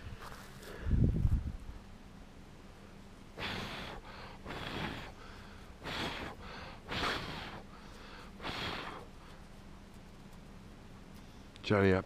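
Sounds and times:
man breathing heavily: 0.0 - 1.4, 3.3 - 9.5.

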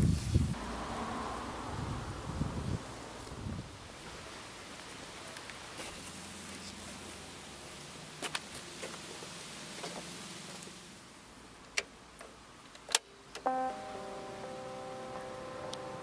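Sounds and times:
held musical notes: 13.4 - 16.0.

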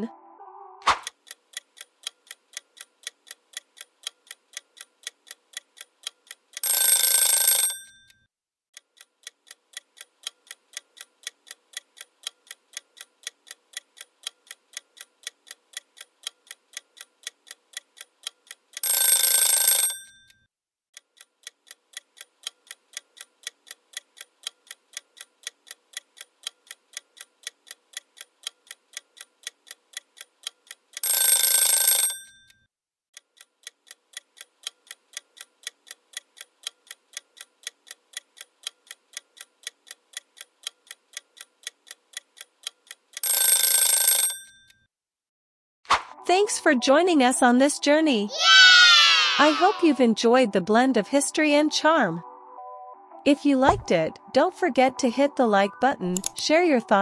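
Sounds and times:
clock ticking rapidly: 1.0 - 8.2, 8.8 - 20.4, 21.0 - 32.6, 33.2 - 44.8
alarm clock bell ringing: 6.6 - 8.2, 18.8 - 20.4, 31.0 - 32.6, 43.2 - 44.7.

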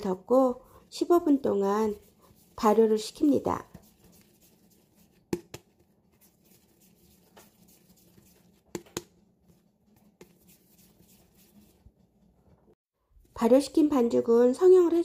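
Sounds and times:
hands rubbing bread dough: 0.0 - 12.8
sharp taps on plastic sheet: 8.7 - 9.2.

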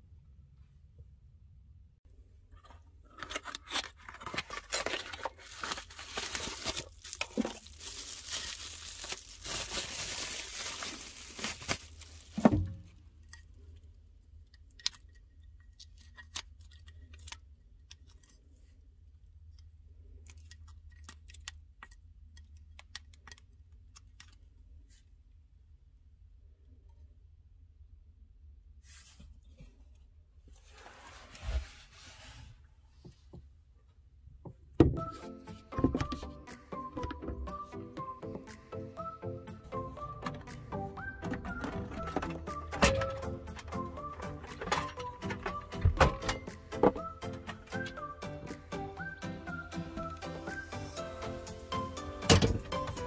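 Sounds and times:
scratchy rustling and tearing: 3.1 - 12.4.

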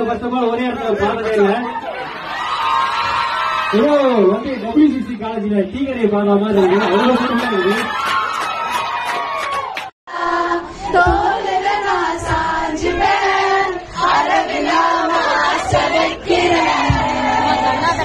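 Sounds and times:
crowd chanting in unison: 10.1 - 18.0
low thumps: 15.6 - 17.8.

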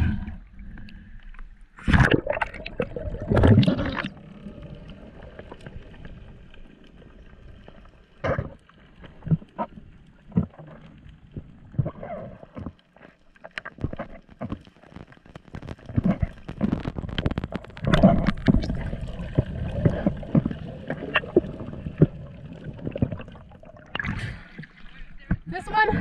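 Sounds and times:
underwater bubbling: 0.0 - 26.0
sharp underwater clicks: 8.2 - 24.2.

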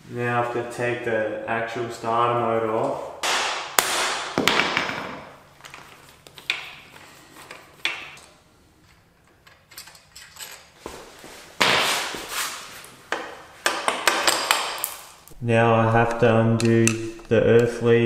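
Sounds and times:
metal tools clinking on engine: 9.2 - 10.8.

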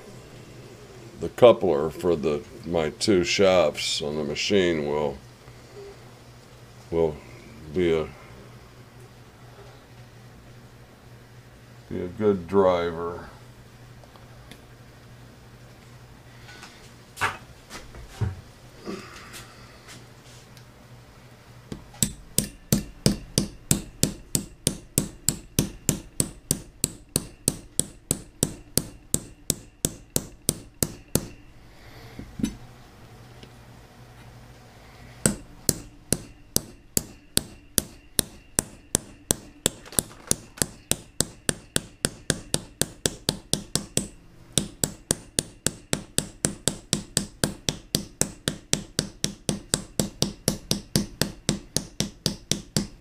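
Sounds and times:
hammer tapping on metal: 21.7 - 31.4, 35.2 - 53.0.

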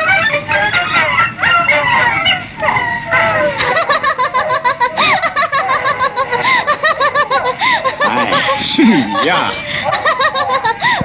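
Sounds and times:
woman laughing heartily: 3.0 - 11.0.

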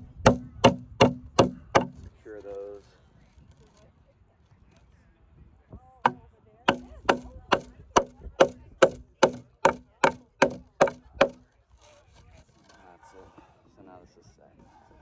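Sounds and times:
hammer driving nails into wood: 0.0 - 2.1, 6.1 - 11.4.

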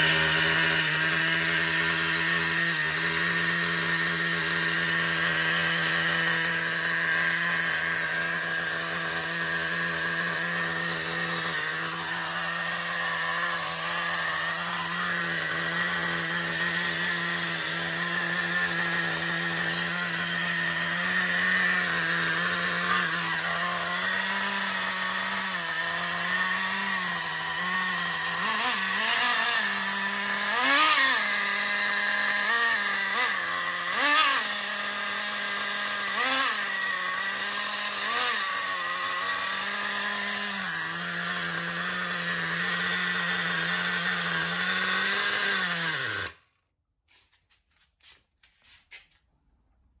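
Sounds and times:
nitro engine revving: 0.0 - 46.4.

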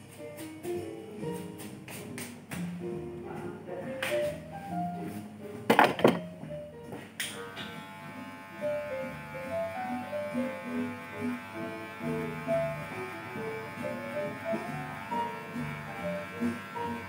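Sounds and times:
background music: 0.0 - 17.0
electric hair clipper buzzing: 7.2 - 17.0.

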